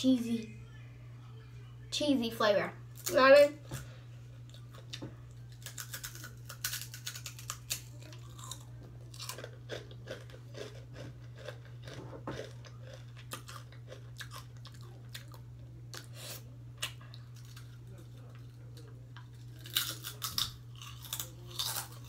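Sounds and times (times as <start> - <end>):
person chewing crunchy chips: 4.5 - 22.0.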